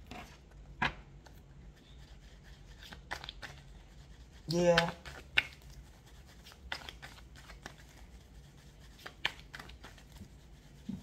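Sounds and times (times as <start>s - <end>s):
tarot cards clicking and rubbing: 0.1s - 11.0s.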